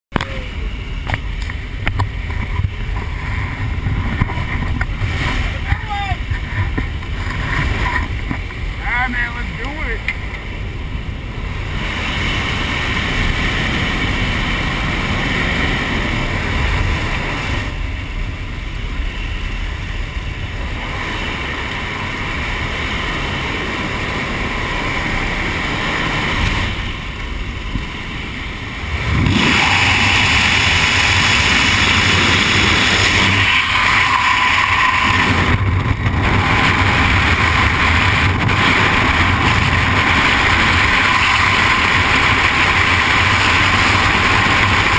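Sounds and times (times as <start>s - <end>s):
rush of freefall wind: 0.1s - 44.9s
turboprop engine rumble: 0.1s - 44.9s
wind through open door: 9.8s - 44.9s.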